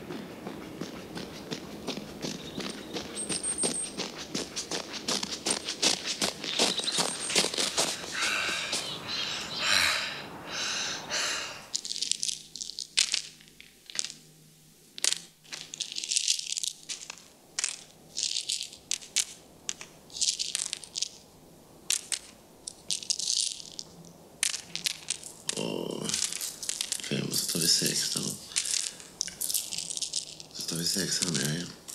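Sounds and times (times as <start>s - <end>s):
crunching: 0.8s - 9.0s, 11.3s - 14.3s, 14.9s - 21.3s, 21.9s - 31.9s
crinkling rustles: 1.2s - 9.0s, 11.7s - 31.9s
tablets clicking and rattling: 11.7s - 14.2s, 15.0s - 21.2s, 21.9s - 31.9s.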